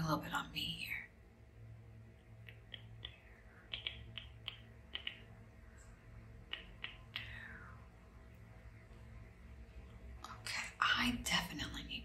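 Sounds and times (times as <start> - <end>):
low steady hum: 0.0 - 12.0
soft clicks and taps: 2.4 - 7.6.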